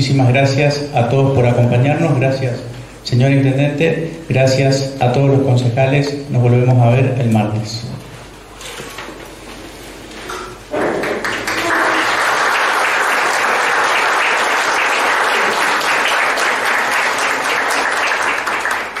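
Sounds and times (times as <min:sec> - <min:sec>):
audience applauding: 0:11.0 - 0:19.0.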